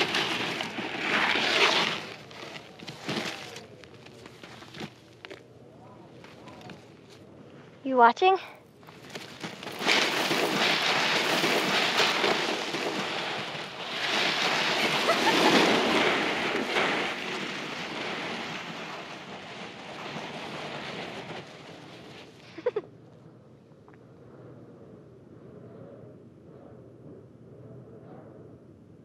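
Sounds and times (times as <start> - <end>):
wind blowing in gusts: 0.0 - 3.7, 8.8 - 29.0.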